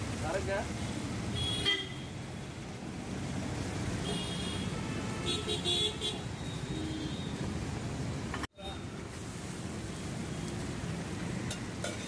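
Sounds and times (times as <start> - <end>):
oil frying in a wok: 0.0 - 12.0
traffic hiss: 0.0 - 12.0
vehicle horns honking: 1.4 - 2.2, 4.0 - 7.4.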